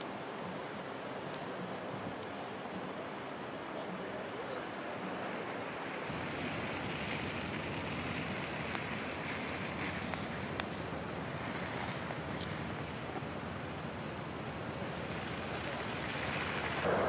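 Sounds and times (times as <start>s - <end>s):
traffic on slushy road: 4.8s - 17.0s
wind on microphone: 4.9s - 17.0s
faint clicks: 9.7s - 10.8s.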